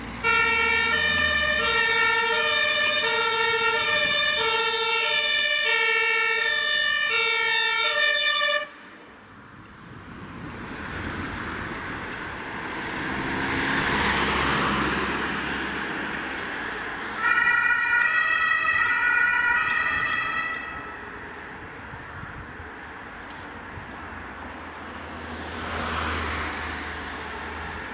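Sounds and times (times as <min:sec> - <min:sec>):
two-tone ambulance siren: 0:00.2 - 0:08.8, 0:17.0 - 0:21.2
van driving past: 0:12.4 - 0:17.0.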